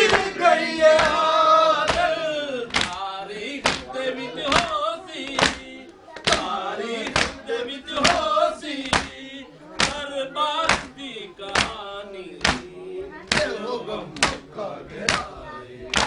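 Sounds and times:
men chanting a lament: 0.0 - 16.0
chest slapping beats: 1.9 - 3.9, 4.5 - 7.4, 8.0 - 9.2, 9.8 - 13.6, 14.2 - 16.0.

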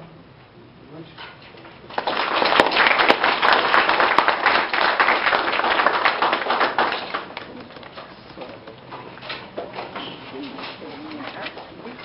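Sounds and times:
audience applauding: 1.9 - 8.4.

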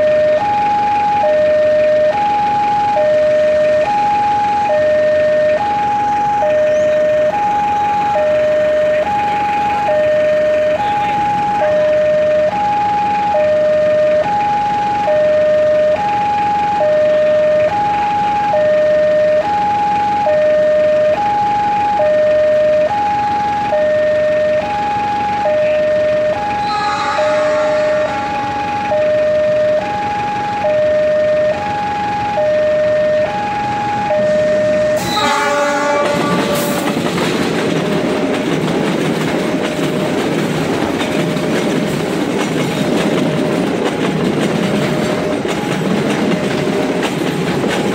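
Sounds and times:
level crossing two-tone alarm: 0.0 - 37.2.

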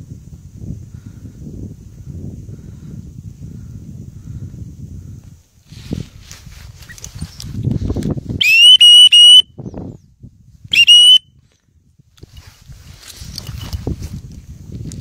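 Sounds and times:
wind rumble on microphone: 0.0 - 15.0
dog whistle pips: 8.4 - 9.4, 10.7 - 11.2.

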